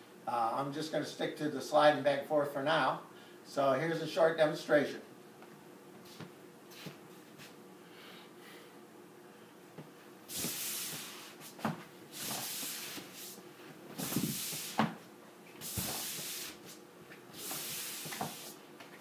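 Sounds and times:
feet swishing on slide board: 10.3s - 15.0s, 15.6s - 18.6s.

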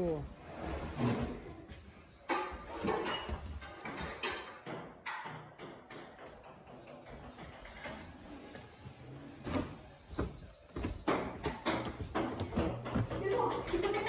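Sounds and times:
footsteps on carpeted stairs: 9.5s - 13.9s.

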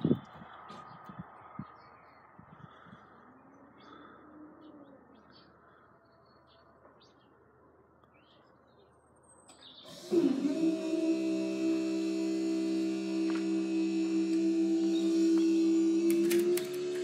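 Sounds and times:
barrier motor humming: 9.8s - 17.0s.

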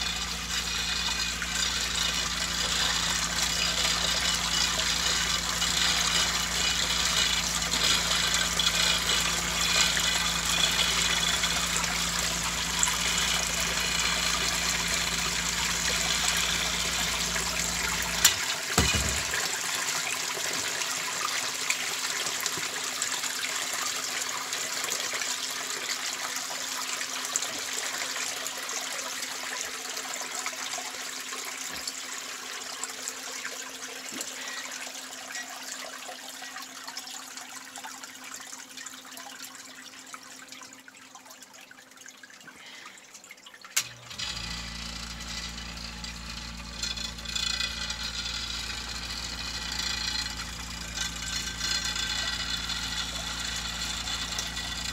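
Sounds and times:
pump motor thump: 0.0s - 23.1s, 43.8s - 54.9s
sump pump humming: 0.0s - 54.9s
water pouring into pit: 0.0s - 54.9s.

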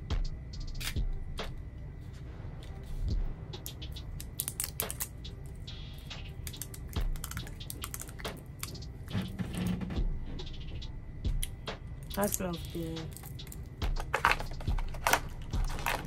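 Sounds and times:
plastic containers clicking and crinkling: 13.1s - 16.0s.

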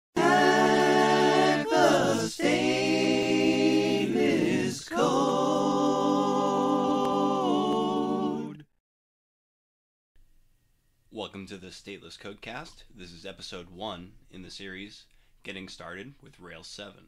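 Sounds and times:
voices singing a cappella: 0.1s - 8.8s.

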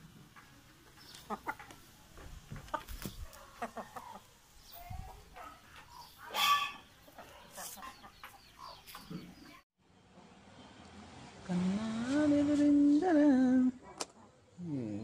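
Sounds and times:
chickens clucking: 0.3s - 9.6s
chicken squawk: 5.8s - 8.8s.

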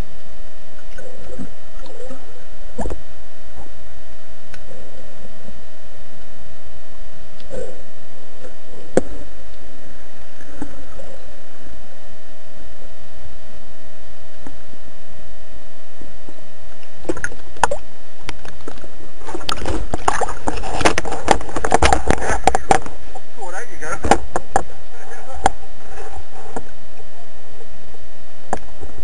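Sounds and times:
muffled underwater hum: 0.0s - 29.0s
water splashing and crackling: 16.7s - 23.3s.

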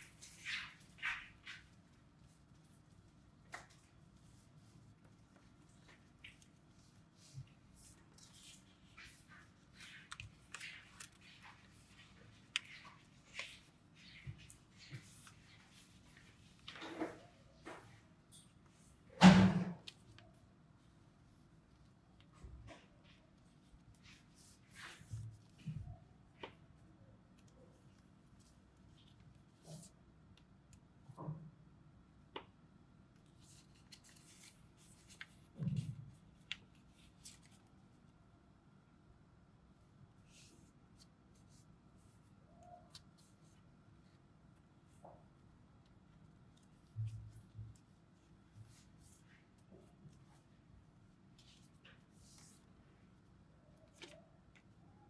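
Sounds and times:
paper rustling and crinkling: 0.0s - 18.0s, 33.3s - 37.8s, 53.7s - 54.8s.

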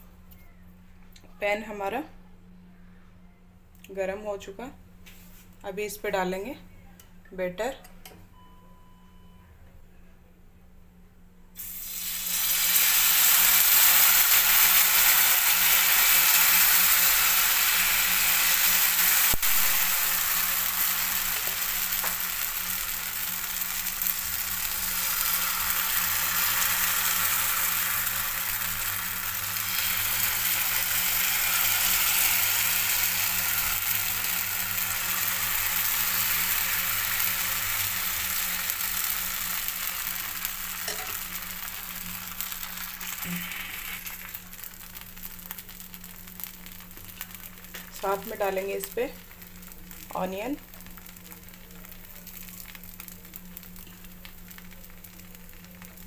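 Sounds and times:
batter sizzling in hot oil: 11.6s - 56.0s.

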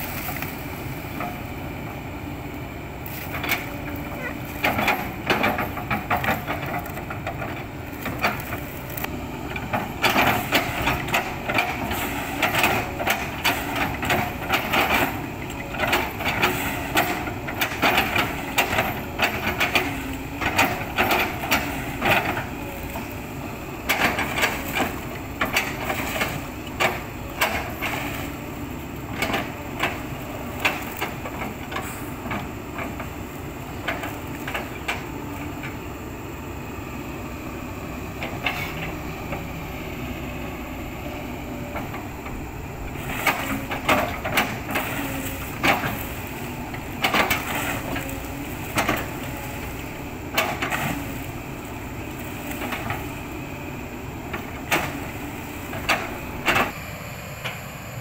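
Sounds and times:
excavator engine running: 0.0s - 58.0s.

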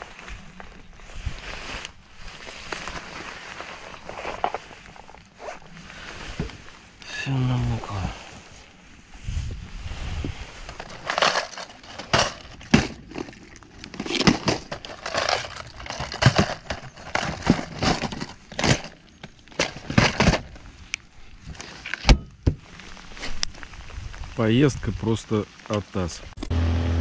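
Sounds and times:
plastic boxes clattering: 10.7s - 20.6s.

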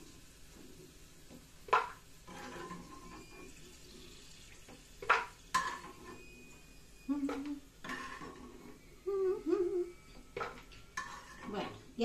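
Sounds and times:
faint frying sizzle: 0.0s - 12.0s
metal spoon scraping frying pan: 1.7s - 4.1s, 5.0s - 6.4s, 7.8s - 8.9s, 10.2s - 12.0s.

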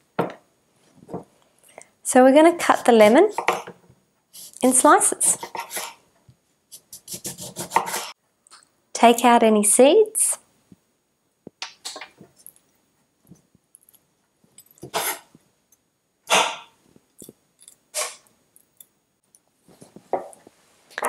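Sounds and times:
knife slicing on chopping board: 6.9s - 8.1s.

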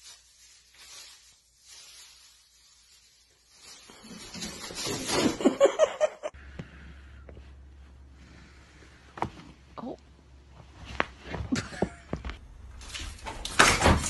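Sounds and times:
plastic bag rustling: 0.0s - 5.8s
person laughing loudly: 5.2s - 6.3s, 11.5s - 12.2s.

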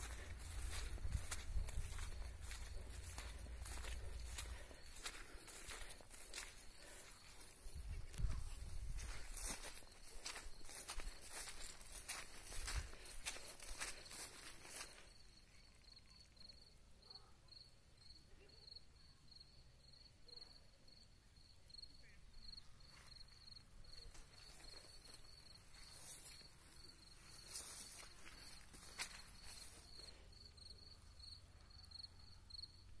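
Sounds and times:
insects chirping: 0.0s - 33.0s
soft rustles: 24.1s - 30.2s.

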